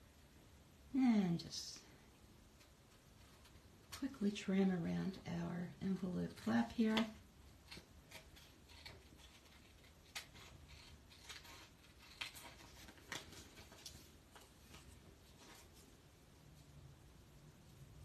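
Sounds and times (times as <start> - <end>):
scissors snipping paper: 7.7 - 13.8.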